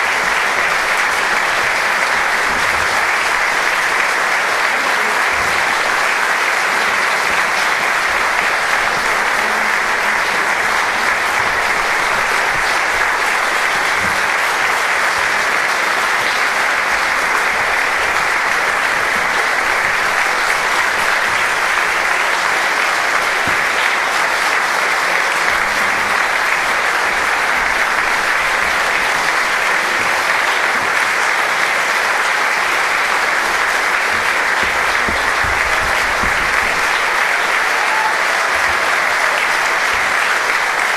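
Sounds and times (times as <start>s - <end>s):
audience applauding: 0.0s - 40.9s.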